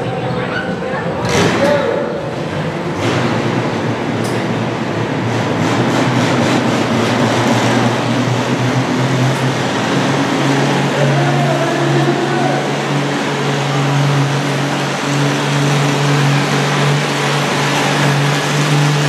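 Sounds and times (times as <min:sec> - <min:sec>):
tractor engine running: 0:01.0 - 0:19.0.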